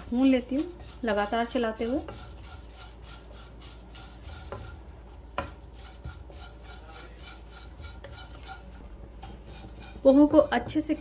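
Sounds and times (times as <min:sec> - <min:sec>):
utensil knocking against pan: 0:09.2 - 0:11.0.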